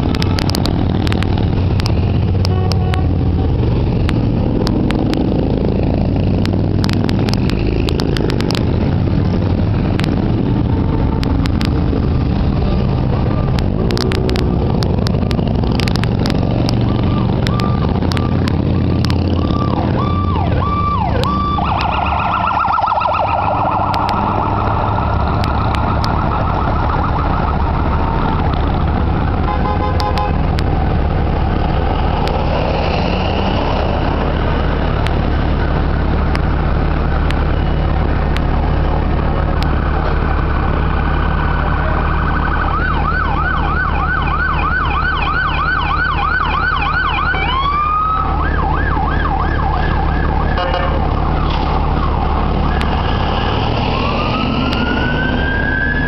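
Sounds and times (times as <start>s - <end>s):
low engine rumble: 0.0s - 56.0s
siren wailing and yelping: 16.4s - 28.8s, 42.0s - 56.0s.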